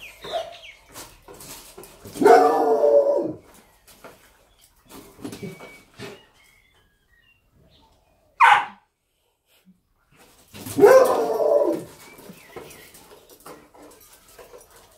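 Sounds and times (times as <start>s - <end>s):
dog barking: 2.2s - 2.7s, 8.4s - 8.9s, 10.8s - 11.4s.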